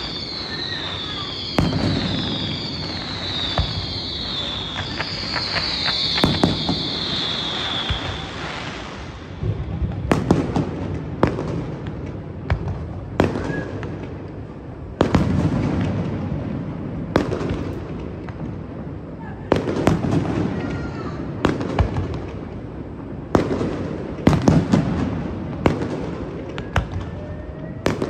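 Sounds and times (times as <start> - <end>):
firework shells bursting: 0.0 - 10.6
fountain firework hissing: 0.0 - 11.9.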